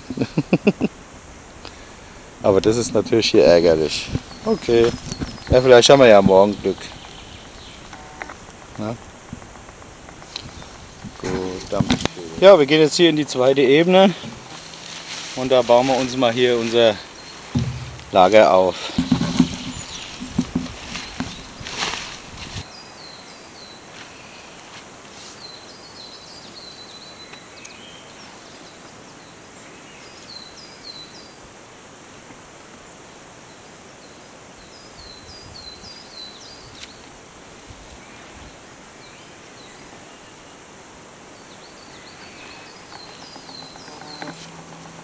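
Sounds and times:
songbird chirping: 0:00.0 - 0:31.4, 0:37.8 - 0:45.0
outdoor background hiss: 0:00.0 - 0:45.0
brief rustle: 0:14.0 - 0:22.7.

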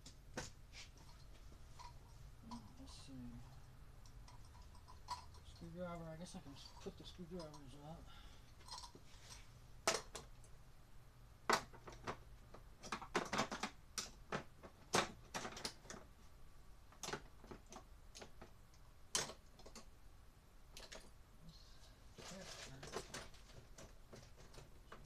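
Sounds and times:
hand tools clicking and clacking: 0:04.0 - 0:05.8.

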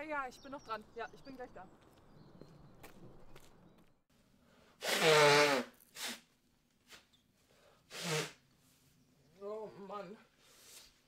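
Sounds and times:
short breathy burst: 0:04.4 - 0:06.3, 0:07.5 - 0:08.4.

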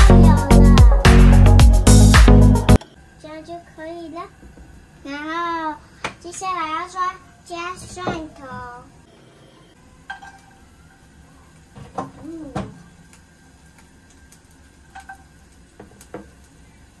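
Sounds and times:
pan and utensils clinking: 0:10.0 - 0:10.6, 0:14.9 - 0:16.3.

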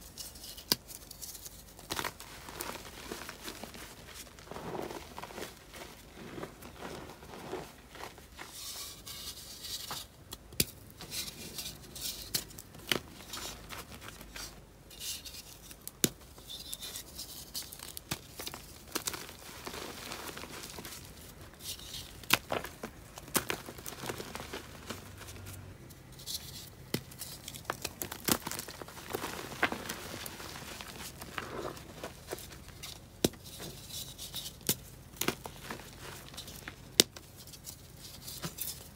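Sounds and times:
chalk crunching by hand: 0:00.1 - 0:10.1, 0:16.4 - 0:34.6
chalk pieces snapping: 0:21.6 - 0:25.1, 0:26.5 - 0:31.8.

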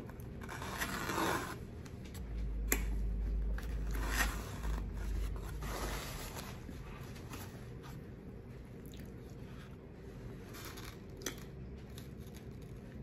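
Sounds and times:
fork scraping foam container: 0:00.4 - 0:01.6, 0:03.8 - 0:06.7.

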